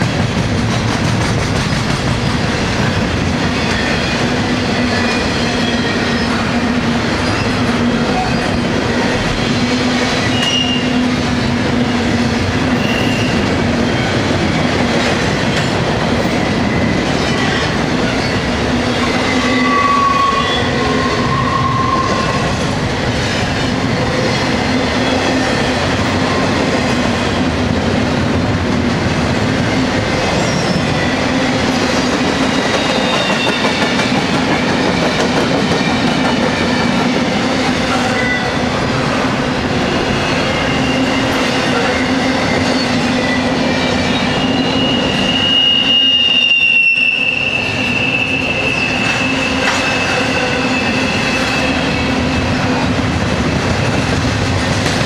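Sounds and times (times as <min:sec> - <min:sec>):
train wheels rumbling on rails: 0:00.0 - 0:55.0
wheel squeals: 0:44.1 - 0:51.7.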